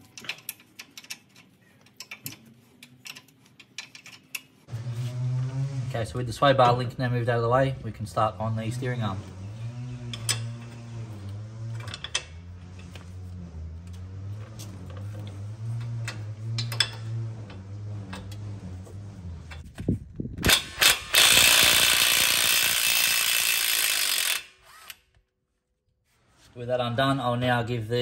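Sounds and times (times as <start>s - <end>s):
power tool spinning nut: 20.4s - 25.1s
hand ratchet clicking: 20.5s - 25.0s.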